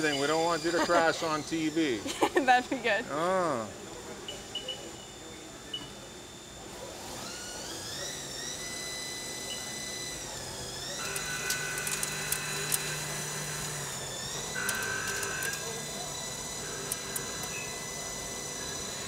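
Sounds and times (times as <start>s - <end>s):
lathe spindle whine: 0.0s - 3.0s, 6.1s - 19.0s
sharp machining ticks: 10.9s - 13.9s, 14.5s - 15.8s, 16.6s - 17.8s.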